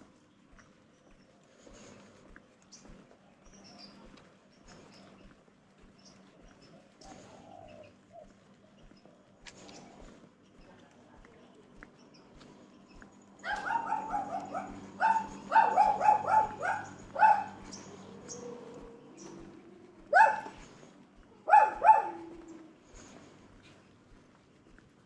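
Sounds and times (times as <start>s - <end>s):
dog barking: 13.4s - 17.9s, 20.1s - 20.8s, 21.4s - 22.6s.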